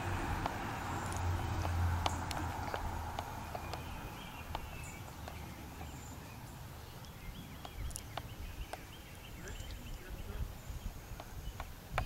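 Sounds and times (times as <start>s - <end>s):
light clicks: 0.3s - 5.9s.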